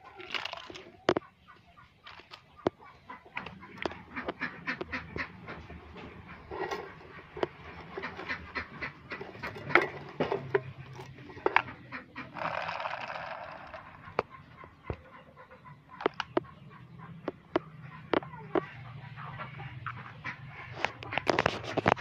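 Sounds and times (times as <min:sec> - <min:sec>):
hard plastic toys clicking: 0:00.0 - 0:01.3, 0:02.0 - 0:15.0, 0:15.9 - 0:16.5
scraping rustle: 0:20.8 - 0:22.0.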